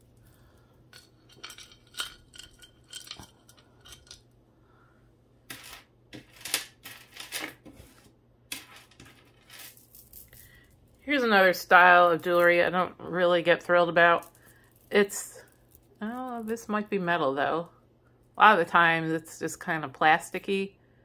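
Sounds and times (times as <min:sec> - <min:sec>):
chain and beads clinking: 0:00.0 - 0:04.2, 0:08.5 - 0:11.1, 0:13.9 - 0:16.7.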